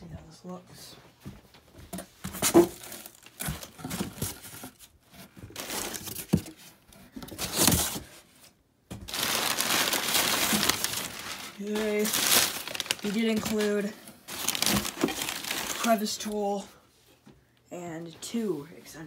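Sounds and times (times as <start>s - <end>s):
packing paper crinkling: 2.7s - 6.4s, 9.0s - 16.4s.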